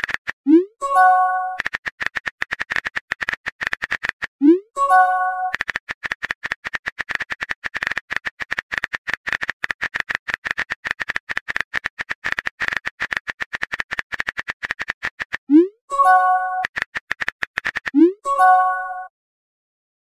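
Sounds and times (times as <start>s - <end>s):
phone keyboard key clicks: 1.6s - 4.3s, 5.5s - 15.5s.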